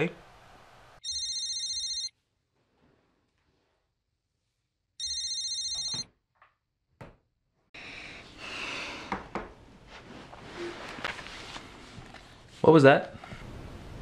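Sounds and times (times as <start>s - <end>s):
pulsing electronic ringtone: 1.0s - 2.1s, 5.0s - 6.0s.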